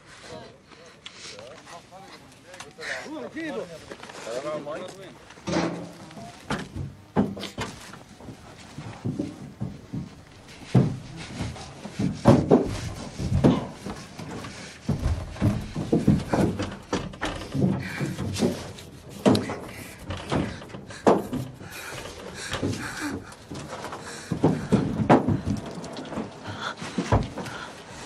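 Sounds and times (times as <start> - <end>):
people panting and whimpering: 0.0 - 4.4, 7.5 - 28.0
heavy thumps on metal bus body: 9.1 - 21.7.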